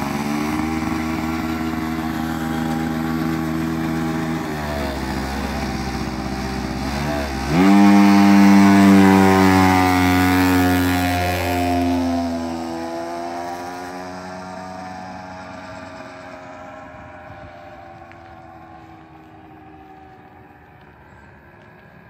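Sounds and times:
small motorbike engine passing: 0.0s - 22.0s.

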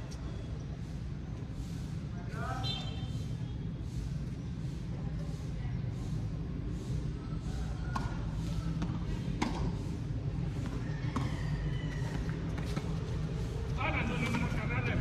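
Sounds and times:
tennis ball struck and bouncing: 7.9s - 9.9s, 10.6s - 11.4s.

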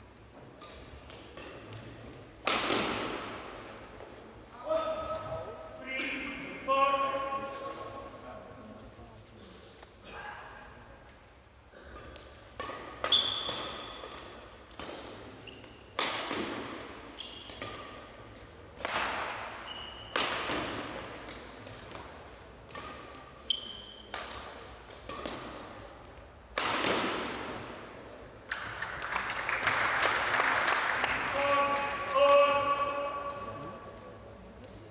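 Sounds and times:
racket hitting shuttlecock: 0.5s - 4.2s, 11.8s - 27.9s
shoes squeaking on court: 12.0s - 14.3s, 15.3s - 15.9s, 17.1s - 17.9s, 19.6s - 20.1s, 22.7s - 24.1s.

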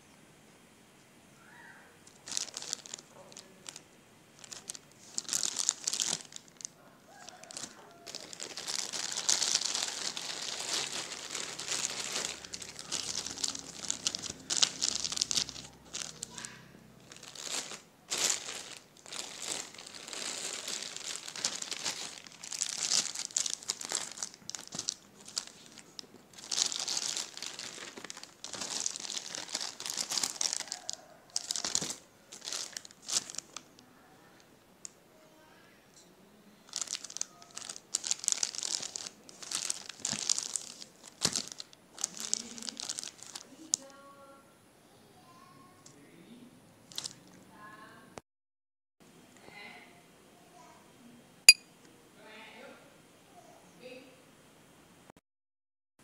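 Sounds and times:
plastic bags crinkling: 2.0s - 33.8s, 36.7s - 44.0s, 46.9s - 47.4s.

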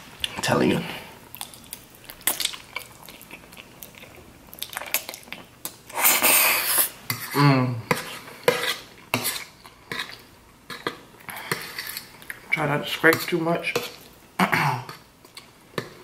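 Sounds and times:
noodles being slurped: 2.2s - 7.4s
fork scraping a plate: 6.1s - 12.1s
person humming: 7.4s - 7.9s.

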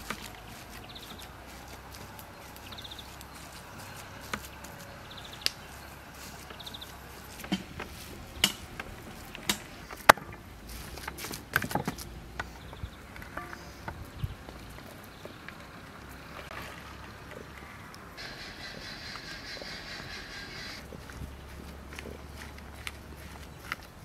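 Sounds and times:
hands kneading minced meat: 0.0s - 9.4s.

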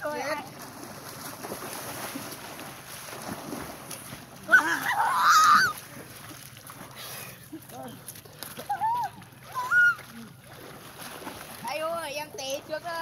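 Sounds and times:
swimmers splashing: 0.0s - 13.0s
boy shouting: 4.5s - 5.7s.

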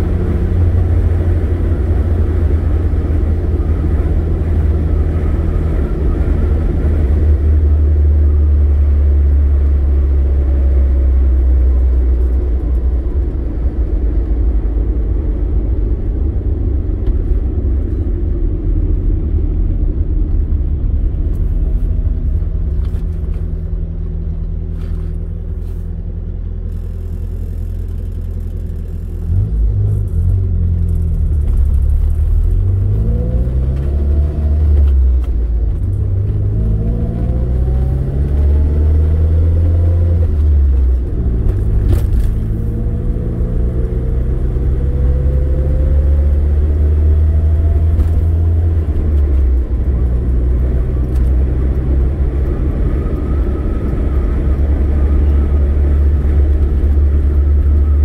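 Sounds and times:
car engine accelerating: 0.0s - 58.0s
road noise inside car: 0.0s - 58.0s.

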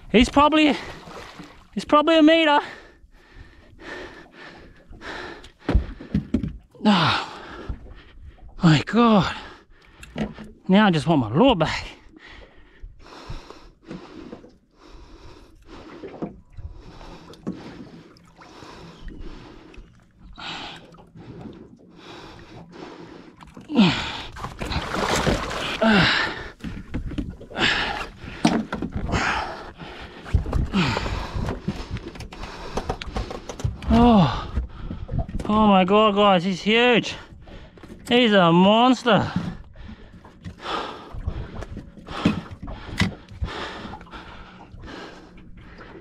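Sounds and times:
person breathing hard: 2.6s - 8.5s, 11.9s - 35.2s, 39.4s - 46.0s.

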